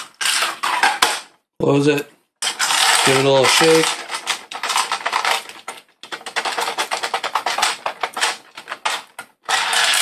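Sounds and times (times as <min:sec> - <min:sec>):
cartridges rattling in plastic loader: 0:02.4 - 0:10.0.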